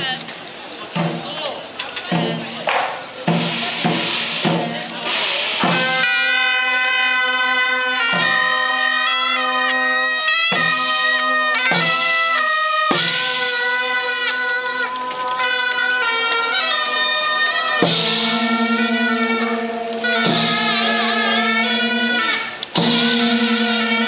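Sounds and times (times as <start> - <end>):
steady drum beats: 0.9 - 24.0
reedy shawms playing melody: 5.2 - 24.0
cymbal crashes: 17.8 - 24.0.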